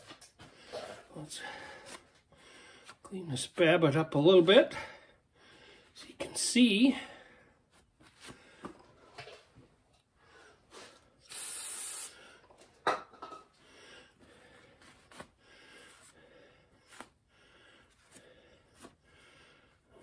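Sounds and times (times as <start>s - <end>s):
aerosol spray hiss: 11.2s - 12.2s.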